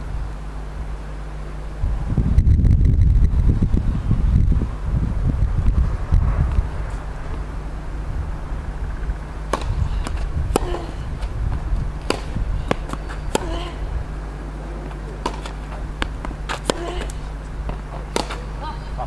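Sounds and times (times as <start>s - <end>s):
wind on microphone: 1.7s - 14.8s
racket hitting tennis ball: 8.9s - 19.0s
ball bouncing: 9.4s - 13.8s, 14.8s - 19.0s.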